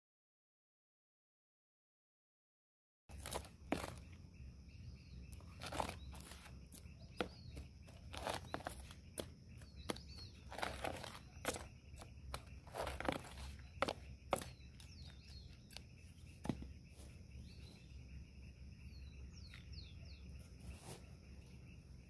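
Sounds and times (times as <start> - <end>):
trowel scraping dry earth: 3.1 - 4.2, 5.3 - 17.8, 20.4 - 21.4.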